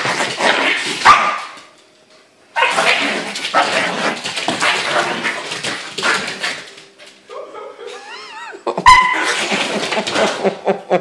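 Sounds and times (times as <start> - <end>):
puppies barking: 8.8 - 9.5.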